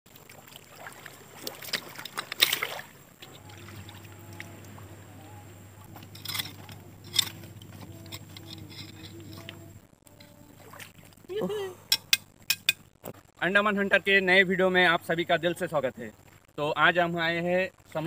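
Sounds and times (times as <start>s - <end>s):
water splashing and sloshing: 0.0s - 13.2s
steady low hum: 2.8s - 13.3s.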